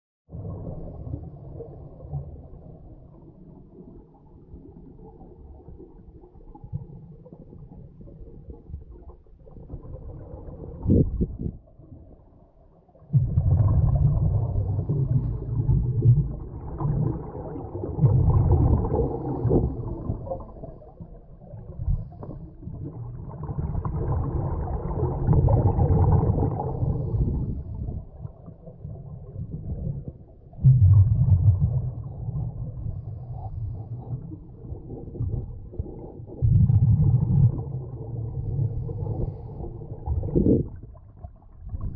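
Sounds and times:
muffled underwater exhalation bubbles: 0:09.6 - 0:11.6, 0:13.0 - 0:41.9.

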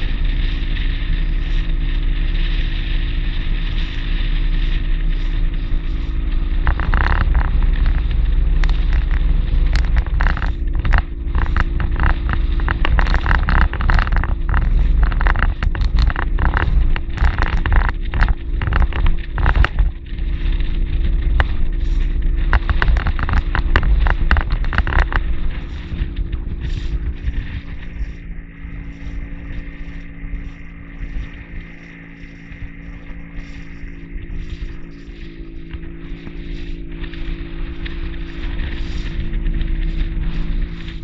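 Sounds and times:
hull slapping choppy water: 0:00.0 - 0:41.0
motorboat engine droning: 0:00.0 - 0:41.0.

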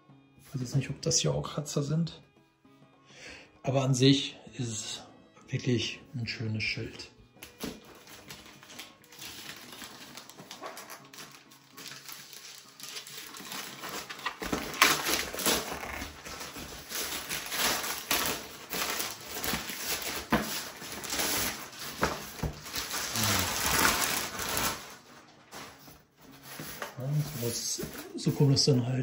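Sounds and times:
packaging rustling: 0:07.4 - 0:28.8.

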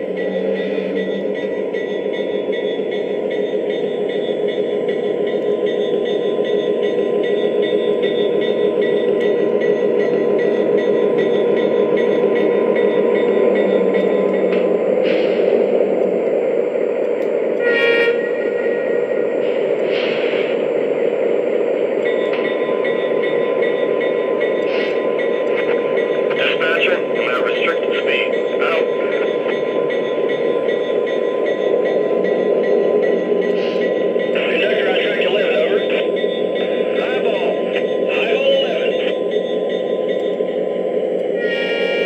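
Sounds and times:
train horn note: 0:17.6 - 0:18.7, 0:41.4 - 0:42.0
air hiss bursts: 0:19.4 - 0:20.6.

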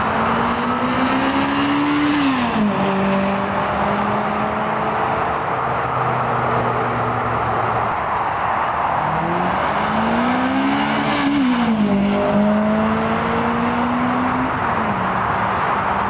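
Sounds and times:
steady rushing noise: 0:05.0 - 0:16.0.

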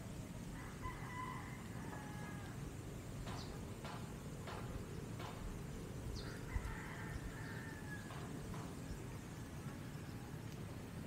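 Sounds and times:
low wind rumble: 0:00.0 - 0:11.0
rooster crowing: 0:00.5 - 0:02.6, 0:06.2 - 0:08.4.

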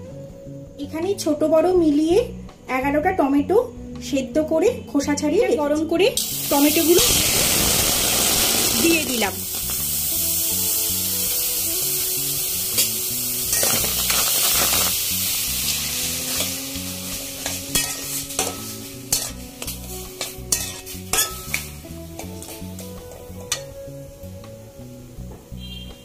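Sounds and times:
tomatoes sizzling in pan: 0:06.2 - 0:25.6
metal spatula scraping pan: 0:15.8 - 0:21.6.

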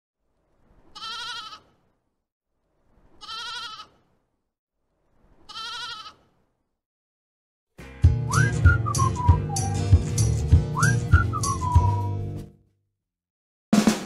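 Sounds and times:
sheep bleating: 0:01.0 - 0:01.8, 0:03.2 - 0:04.0, 0:05.5 - 0:06.3.

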